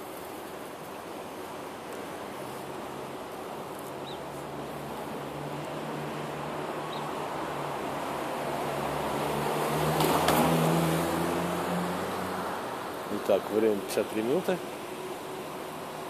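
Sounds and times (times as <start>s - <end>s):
vehicle passing: 4.0s - 16.0s.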